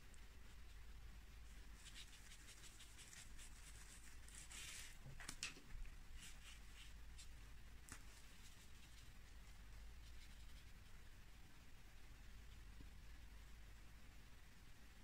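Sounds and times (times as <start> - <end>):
brush stroking on paper: 0.5 - 5.2, 6.0 - 11.1.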